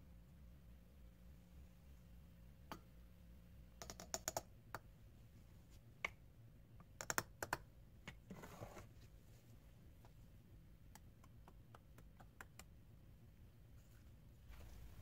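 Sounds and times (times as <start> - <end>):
soft rustle: 13.7 - 15.0.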